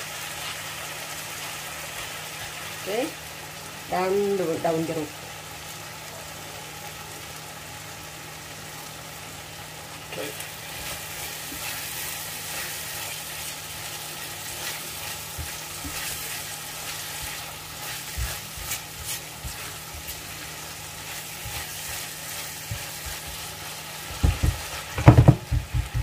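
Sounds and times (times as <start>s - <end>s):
paste sizzling in oil: 0.0s - 26.0s
utensil scraping a pan: 10.6s - 25.3s
heavy knocks: 24.2s - 26.0s.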